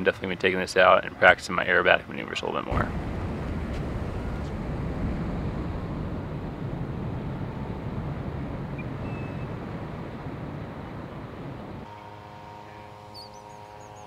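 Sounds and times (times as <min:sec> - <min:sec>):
rush of air: 0:02.7 - 0:11.9.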